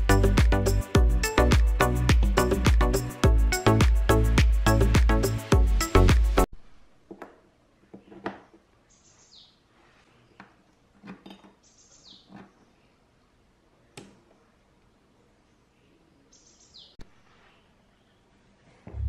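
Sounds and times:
bird chirping: 8.8s - 10.4s, 11.6s - 13.1s, 15.4s - 19.0s.

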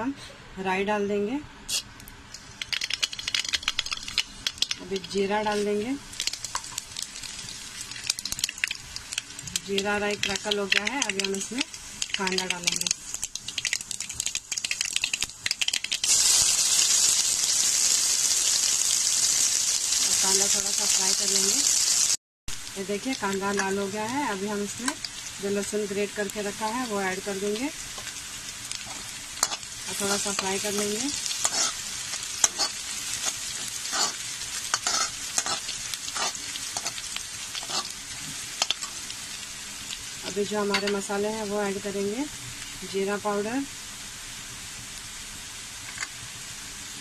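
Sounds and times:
onion sizzling in oil: 1.7s - 47.0s
seeds crackling and popping in oil: 2.0s - 5.3s, 6.1s - 39.1s
spatula scraping a pan: 31.4s - 31.8s, 32.4s - 32.8s, 33.6s - 37.0s, 37.6s - 37.9s.

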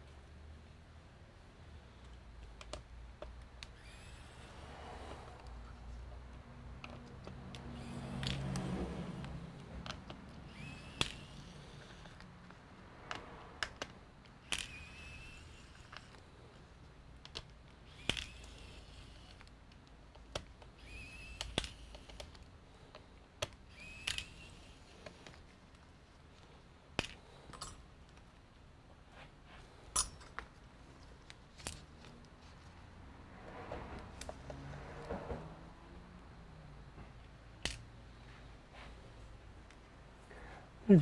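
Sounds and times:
small tools and screws clicking: 2.0s - 28.4s, 29.8s - 32.4s, 37.6s - 38.0s
small motor whirring: 3.6s - 5.5s, 6.8s - 12.3s, 14.4s - 16.4s, 17.8s - 19.5s, 20.6s - 25.4s.

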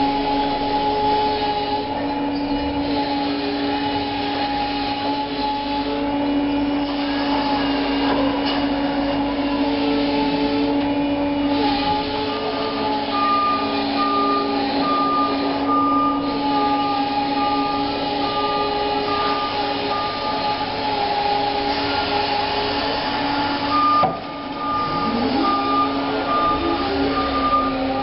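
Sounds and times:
forklift motor and hydraulic whine: 0.0s - 28.0s
warning beeps: 23.7s - 28.0s.

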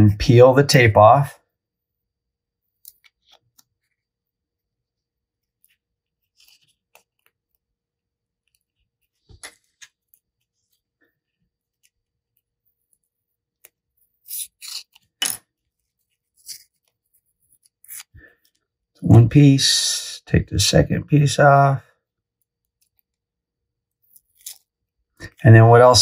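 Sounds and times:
tape peeling and crackling: 24.0s - 24.8s.

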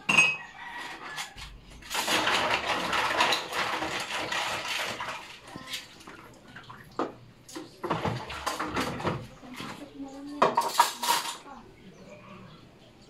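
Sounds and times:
plastic dishes clattering: 0.0s - 6.0s, 7.0s - 11.5s
water splashing and pouring: 1.9s - 9.9s.

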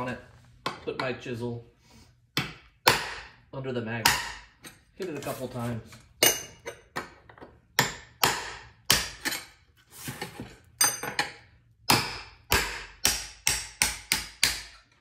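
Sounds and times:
hammer striking steel chisel: 2.4s - 3.4s, 4.0s - 4.8s, 7.8s - 9.5s, 10.8s - 15.0s.

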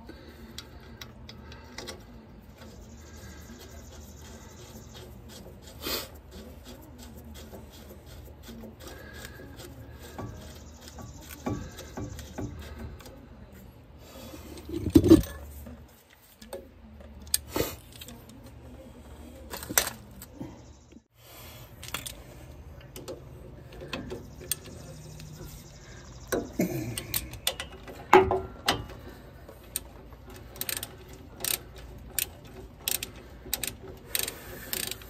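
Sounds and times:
tools scraping brake caliper: 0.1s - 15.8s, 21.8s - 35.0s
metal clicks: 26.3s - 35.0s.

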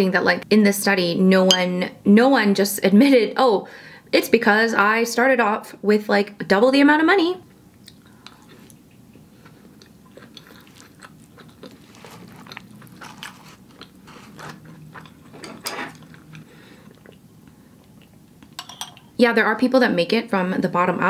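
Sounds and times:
person chewing food: 7.7s - 18.6s.

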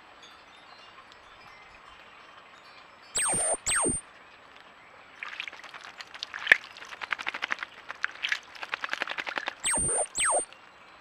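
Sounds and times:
bird splashing in water: 5.2s - 10.2s
sharp water slap: 5.2s - 10.5s.

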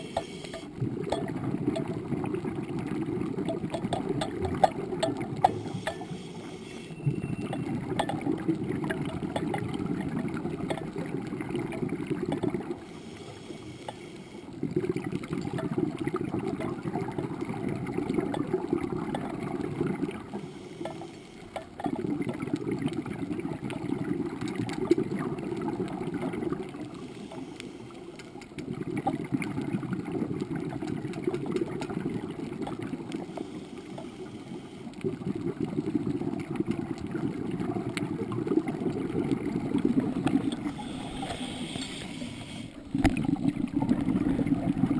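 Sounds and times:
faint clicks: 0.0s - 2.0s, 3.4s - 9.8s, 13.2s - 14.6s, 20.7s - 22.0s, 26.8s - 29.2s, 30.7s - 32.0s, 40.2s - 43.2s
underwater regulator bubbles: 0.0s - 44.9s.

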